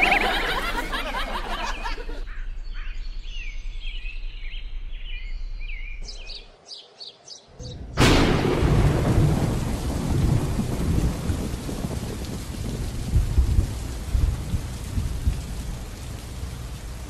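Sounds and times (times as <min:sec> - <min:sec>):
steady rain: 0:00.0 - 0:01.6, 0:07.9 - 0:17.0
thunderclap rumbling: 0:07.7 - 0:17.0.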